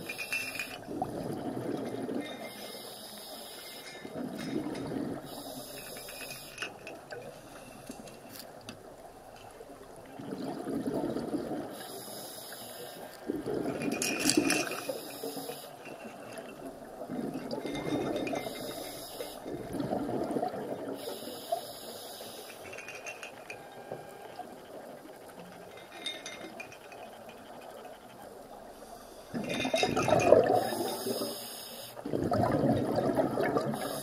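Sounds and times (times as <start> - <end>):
bubbling exhaled air: 0.8 - 2.8, 3.9 - 6.0, 10.2 - 11.8, 13.2 - 15.6, 17.0 - 21.5, 29.2 - 31.4, 32.0 - 34.0.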